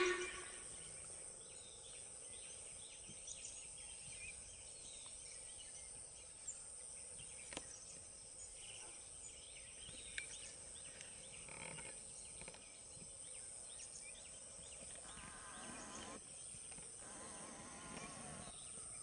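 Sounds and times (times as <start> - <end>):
high-pitched insect drone: 0.0 - 0.8
bird chirps: 0.0 - 5.8.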